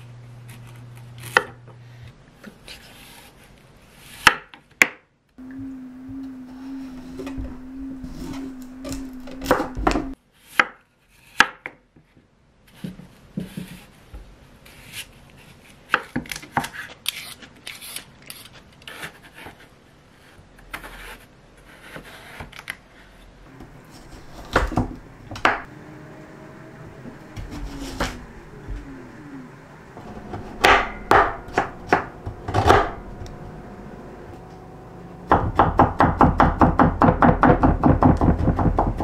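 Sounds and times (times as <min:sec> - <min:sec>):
steady low tone: 0:05.4 - 0:10.2, 0:23.5 - 0:35.6
knife chopping on wooden board: 0:08.9 - 0:10.8, 0:23.6 - 0:25.7, 0:30.3 - 0:33.0, 0:35.3 - 0:39.0.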